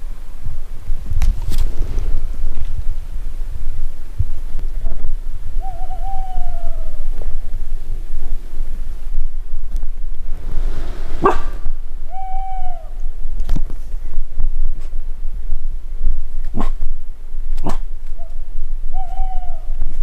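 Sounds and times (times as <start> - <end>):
dog whining: 18.2 - 19.7.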